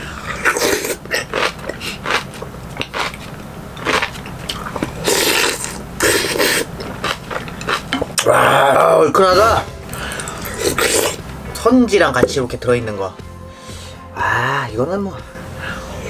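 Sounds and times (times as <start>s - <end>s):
person slurping: 0.0s - 11.2s
wet chewing and smacking: 0.4s - 8.3s.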